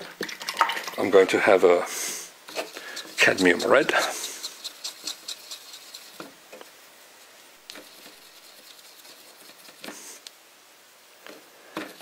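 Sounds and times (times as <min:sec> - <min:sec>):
brush scrubbing and tapping in paint pan: 0:00.7 - 0:10.2.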